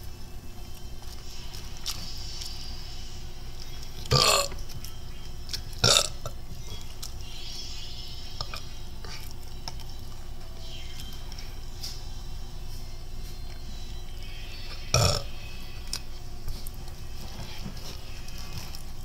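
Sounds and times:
loud short burps: 5.8s - 6.2s.

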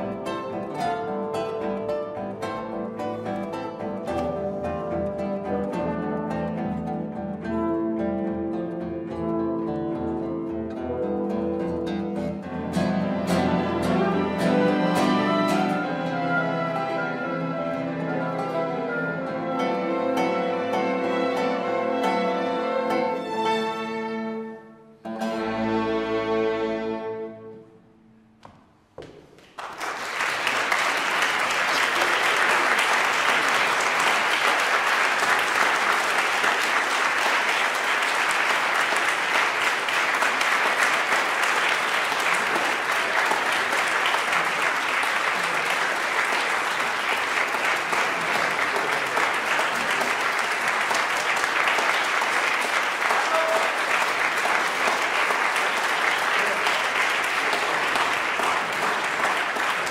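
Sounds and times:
audience applauding: 29.3s - 59.9s.

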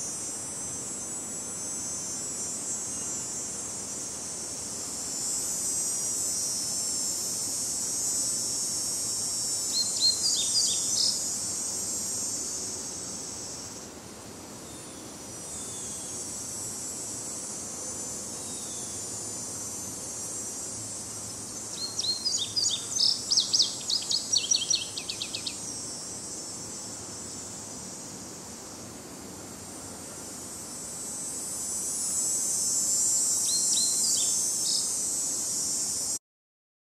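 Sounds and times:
high insect chorus: 0.0s - 36.2s
songbird singing: 9.7s - 11.4s, 21.6s - 25.7s, 33.4s - 35.0s.

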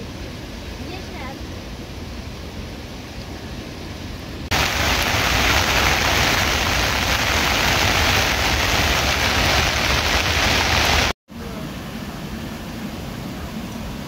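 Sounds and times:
heavy rain falling: 4.5s - 11.2s.

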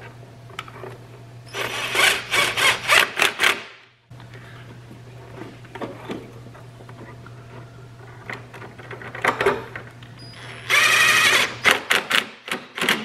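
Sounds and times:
cordless power driver running: 1.5s - 3.5s, 10.4s - 11.8s
low steady hum: 3.9s - 11.7s.

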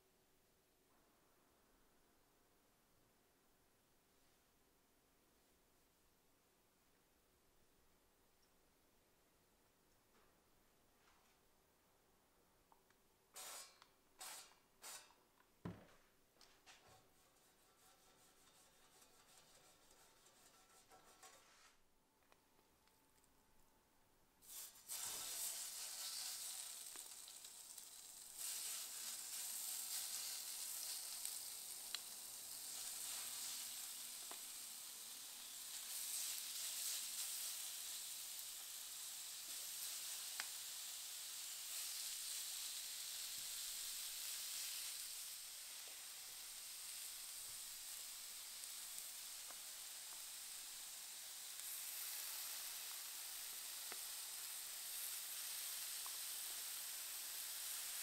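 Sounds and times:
meat sizzling on a grill: 24.4s - 58.0s.

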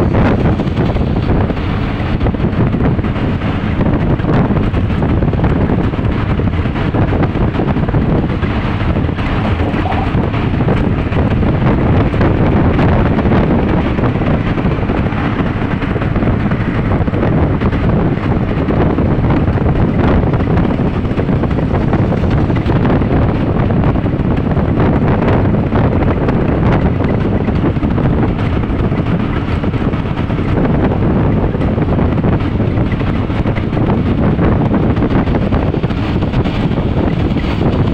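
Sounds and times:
vehicle road noise: 0.0s - 37.9s
wind rushing over microphone: 0.0s - 37.9s.

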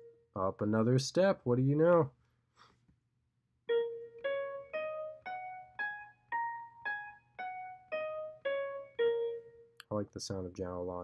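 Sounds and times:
piano single notes: 3.7s - 9.8s.

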